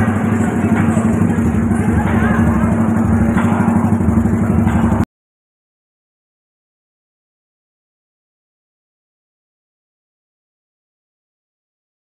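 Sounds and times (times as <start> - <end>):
faint crowd voices: 0.0 - 5.0
motorcycle engine rumbling: 0.0 - 5.1.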